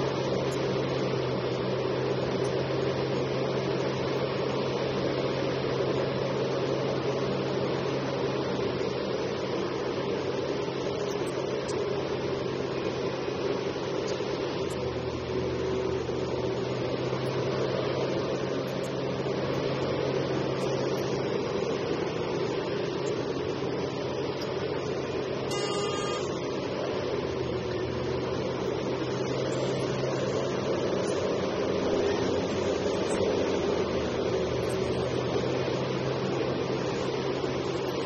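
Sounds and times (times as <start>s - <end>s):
excavator diesel engine: 12.0s - 38.0s.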